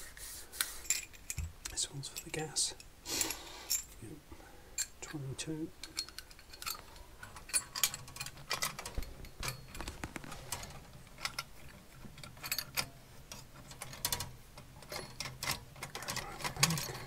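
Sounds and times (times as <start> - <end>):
metal pipe fittings clinking: 4.8 - 5.2, 5.8 - 17.0.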